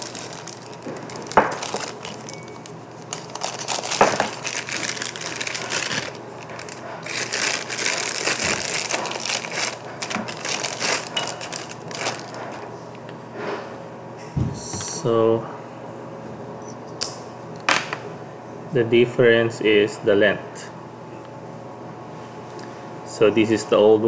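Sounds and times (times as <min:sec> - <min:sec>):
plastic bag crinkling: 0:00.0 - 0:12.7.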